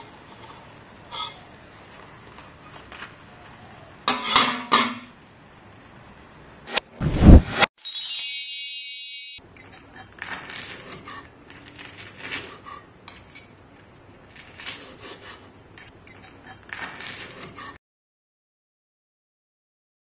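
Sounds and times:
metallic ringing tone: 0:07.8 - 0:09.8
knife cutting crisp fritters: 0:09.9 - 0:13.6, 0:14.3 - 0:17.8.

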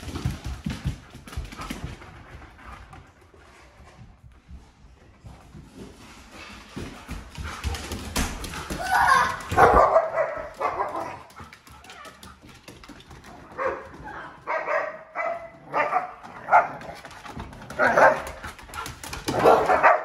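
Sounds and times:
dogs barking: 0:09.1 - 0:11.4, 0:13.5 - 0:17.0, 0:17.8 - 0:18.4, 0:19.3 - 0:20.0.

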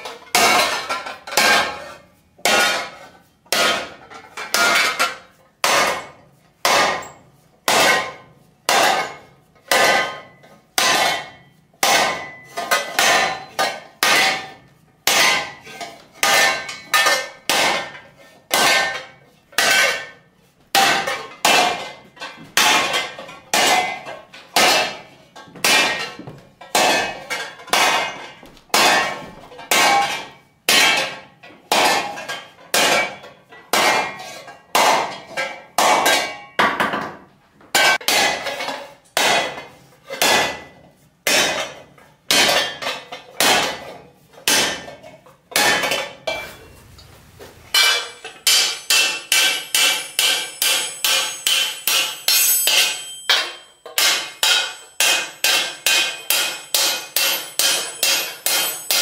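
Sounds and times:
hammer blows on sheet steel: 0:00.4 - 0:20.1, 0:45.6 - 0:59.0.

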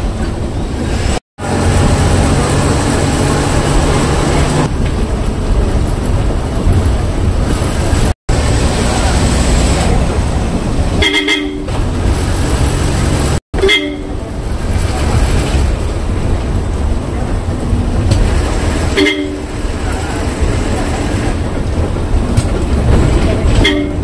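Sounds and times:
road traffic rumble: 0:00.0 - 0:24.0
vehicle horn: 0:11.0 - 0:11.7, 0:13.6 - 0:14.2, 0:18.9 - 0:19.6, 0:23.6 - 0:24.0.

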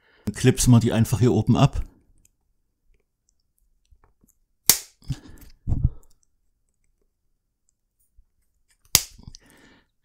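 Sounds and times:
cable tie snipped with a snap: 0:04.7 - 0:05.0, 0:08.8 - 0:09.4.

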